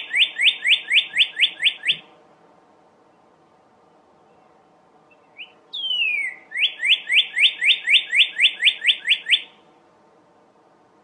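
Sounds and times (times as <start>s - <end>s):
cardinal singing whistles: 0.0s - 2.1s, 5.1s - 9.6s.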